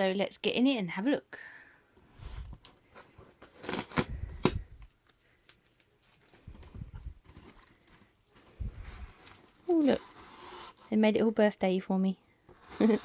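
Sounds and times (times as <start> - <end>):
cardboard and tape tearing: 3.4 - 4.7, 9.1 - 10.9.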